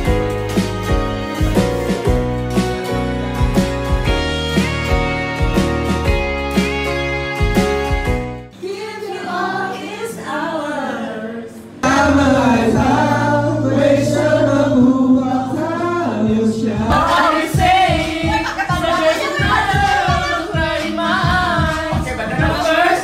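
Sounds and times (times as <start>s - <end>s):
backing track: 0.0s - 8.6s, 10.8s - 23.0s
people singing karaoke: 8.5s - 23.0s
steady low beat: 11.8s - 23.0s.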